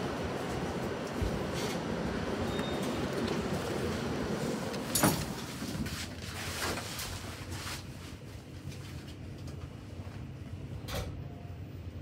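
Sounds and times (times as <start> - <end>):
lift car humming: 0.0 - 6.0.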